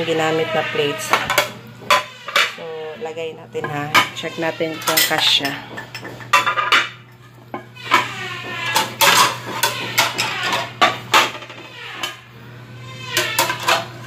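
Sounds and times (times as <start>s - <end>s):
ceramic plates clinking: 3.6s - 12.2s, 13.0s - 14.0s.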